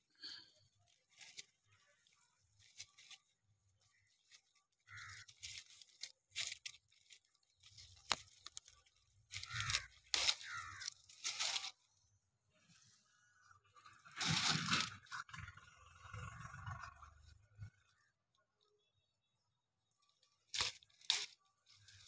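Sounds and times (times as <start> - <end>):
leaves rustling and scraping: 0.6 - 11.9, 14.0 - 15.3, 20.1 - 22.0.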